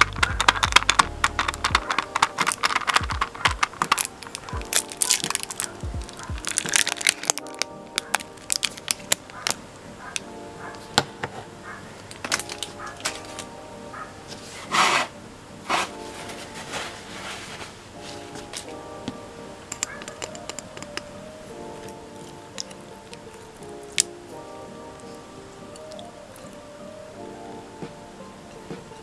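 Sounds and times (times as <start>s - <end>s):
plastic film crackling over slime: 0.0s - 10.3s, 12.1s - 13.6s, 15.8s - 18.8s, 21.8s - 24.5s
soft background music: 0.0s - 29.0s.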